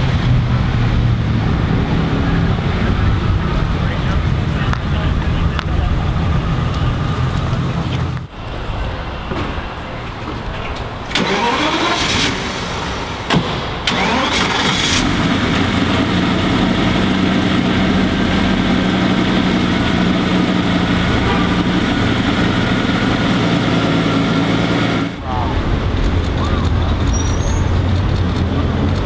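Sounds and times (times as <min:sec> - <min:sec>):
engine revving and idling: 0:00.0 - 0:08.3, 0:11.1 - 0:29.0
engine cranking: 0:10.4 - 0:29.0.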